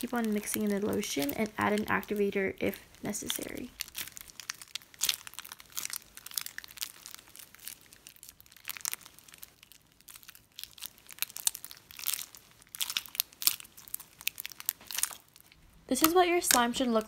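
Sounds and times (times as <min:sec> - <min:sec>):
slime kneaded by hand: 0:00.0 - 0:17.0.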